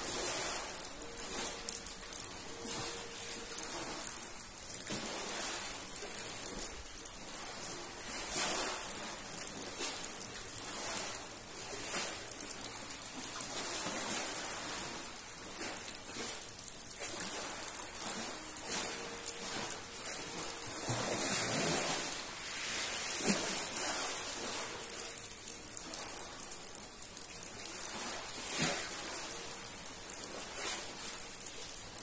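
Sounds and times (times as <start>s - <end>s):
rain hissing: 0.0s - 32.0s
waves washing over pebbles: 0.0s - 32.0s.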